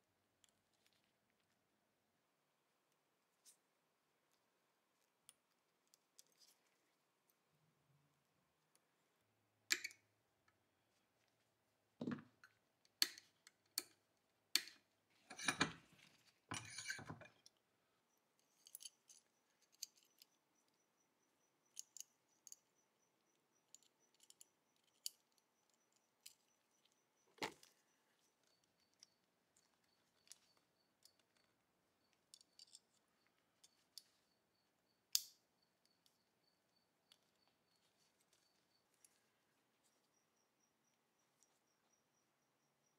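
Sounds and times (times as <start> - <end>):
small steel parts clicking: 9.7 - 10.1, 18.3 - 34.4, 35.1 - 36.2.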